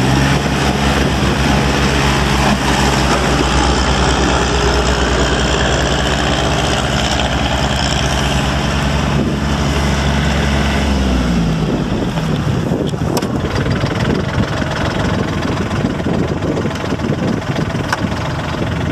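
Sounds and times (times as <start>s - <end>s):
tractor diesel engine idling: 0.0s - 18.9s.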